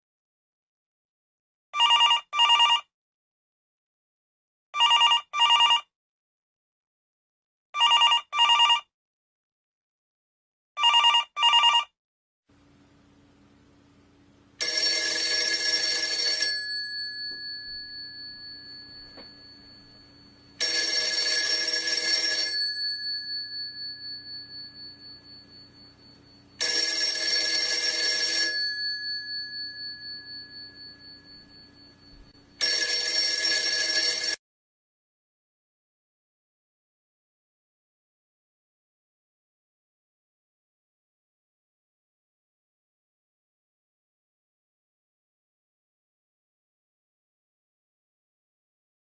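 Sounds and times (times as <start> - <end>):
telephone bell ringing: 1.8 - 2.9, 4.8 - 5.9, 7.8 - 8.9, 10.8 - 12.0, 14.6 - 34.4
faint steady hum: 12.5 - 32.6.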